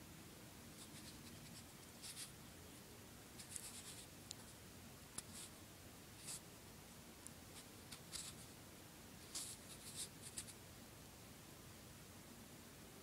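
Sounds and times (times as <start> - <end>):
faint scratchy rustles: 0.8 - 2.4, 3.4 - 4.6, 7.5 - 8.6, 9.2 - 10.6.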